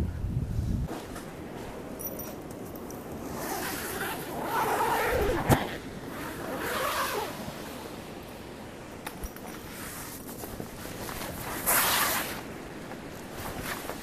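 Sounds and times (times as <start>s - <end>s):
zipper being pulled open: 3.2s - 7.7s, 9.7s - 12.4s.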